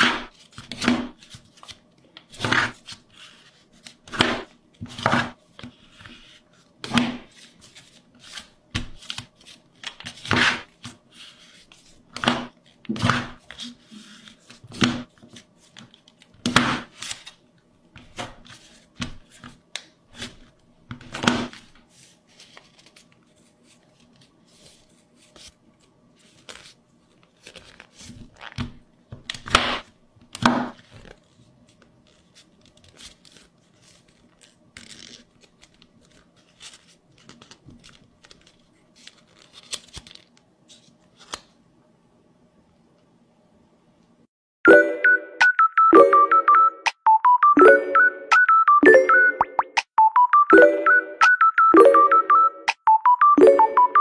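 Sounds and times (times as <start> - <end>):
paper being folded and creased: 0.0 - 17.4, 18.0 - 29.6, 30.7 - 41.6.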